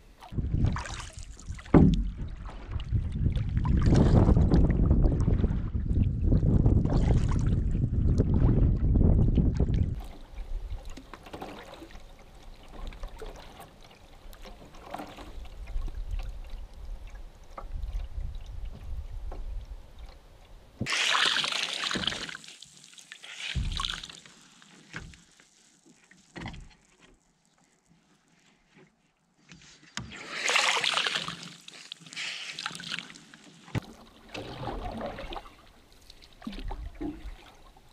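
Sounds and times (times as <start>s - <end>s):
water along a canoe bow: 0.0s - 37.9s
paddle splashing and dripping: 0.2s - 7.5s, 9.1s - 28.7s, 29.9s - 37.9s
wind on microphone: 0.3s - 10.8s, 15.5s - 20.0s.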